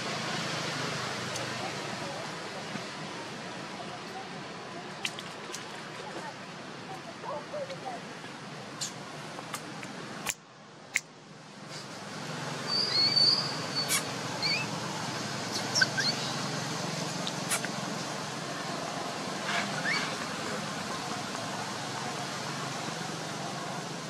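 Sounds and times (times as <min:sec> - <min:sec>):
short high chirps and squeaks: 0:12.7 - 0:14.7, 0:15.5 - 0:16.3.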